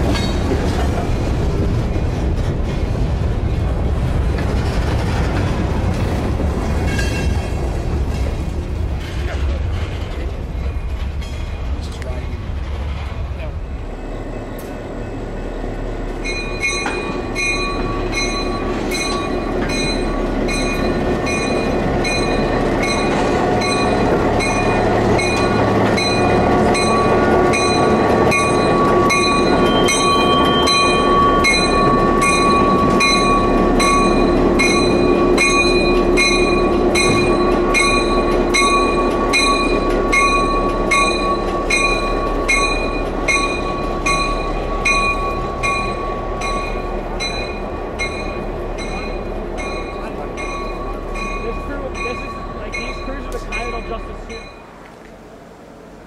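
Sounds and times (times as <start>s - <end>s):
diesel locomotive engine: 0.0s - 56.0s
locomotive bell ringing: 13.8s - 54.8s.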